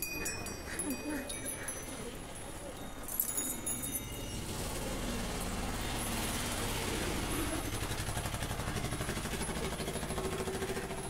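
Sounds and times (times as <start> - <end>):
vehicle engine running: 4.0 - 11.0.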